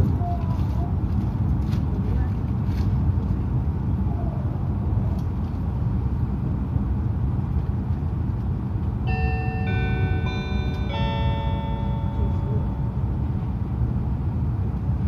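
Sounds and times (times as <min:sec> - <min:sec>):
train running rumble: 0:00.0 - 0:15.0
bell-like chime melody: 0:09.1 - 0:13.1.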